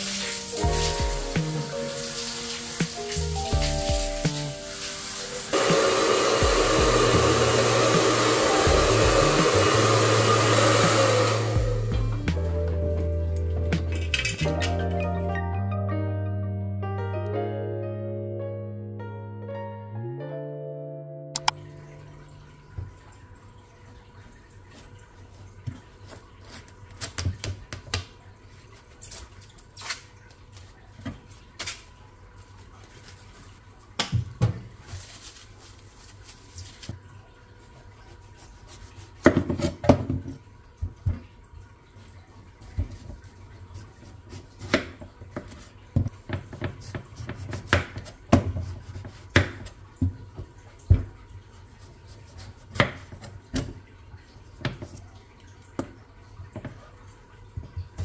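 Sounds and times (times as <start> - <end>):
dishes and utensils clinking: 13.8 - 14.9.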